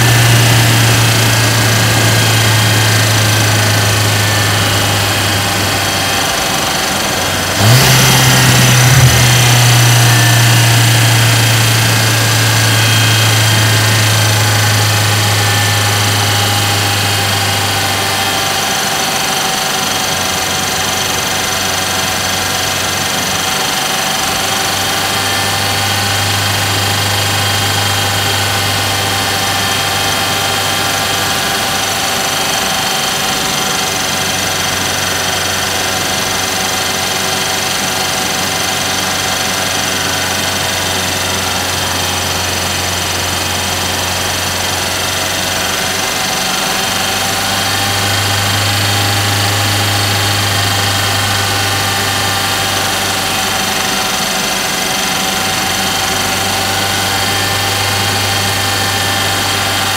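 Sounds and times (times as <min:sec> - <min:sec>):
road noise: 0:00.0 - 0:19.2
car engine running: 0:00.0 - 0:59.9.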